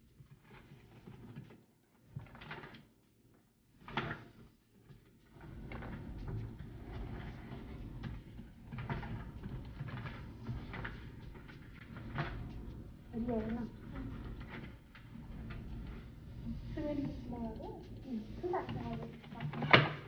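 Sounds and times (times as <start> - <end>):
low steady hum: 8.9 - 19.7.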